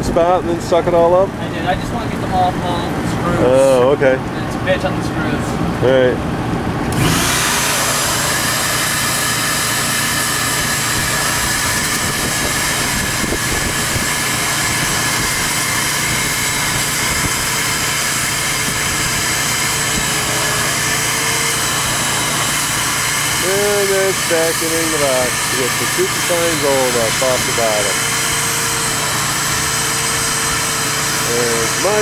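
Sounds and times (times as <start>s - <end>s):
shop vacuum sucking water: 6.8s - 32.0s.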